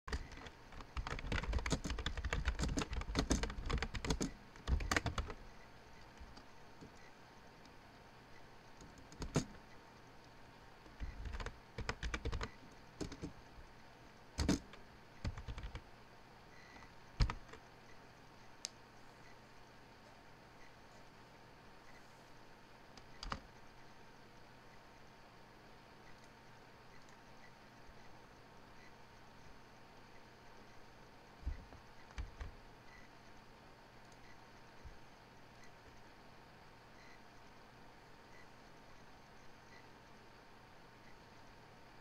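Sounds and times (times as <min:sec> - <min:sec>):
computer keyboard typing: 0:00.1 - 0:05.4, 0:08.8 - 0:09.6, 0:11.0 - 0:13.4, 0:14.4 - 0:15.8, 0:16.7 - 0:17.7, 0:23.0 - 0:23.4, 0:31.4 - 0:32.6.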